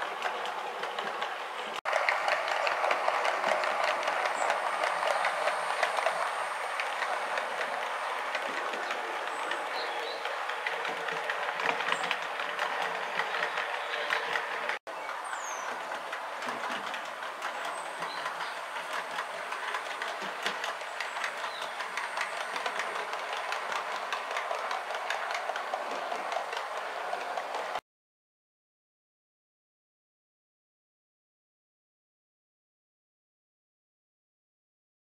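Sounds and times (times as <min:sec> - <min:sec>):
model train wheels clicking: 0:00.0 - 0:27.8.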